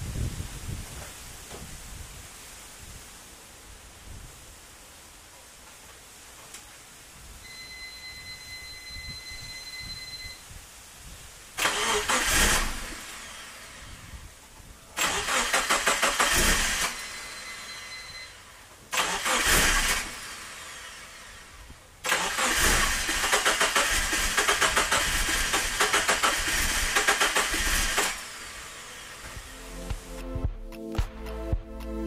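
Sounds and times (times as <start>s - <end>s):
steady electronic beep: 7.4s - 10.4s, 17.2s - 18.5s
engine cranked by starter: 11.6s - 14.1s, 15.0s - 18.0s, 18.9s - 29.5s.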